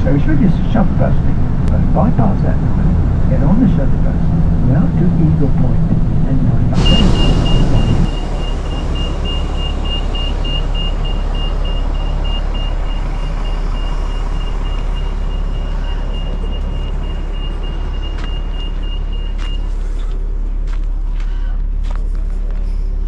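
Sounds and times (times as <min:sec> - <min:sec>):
bus engine rumbling: 0:00.0 - 0:23.0
electronic warning beeps: 0:06.8 - 0:20.2.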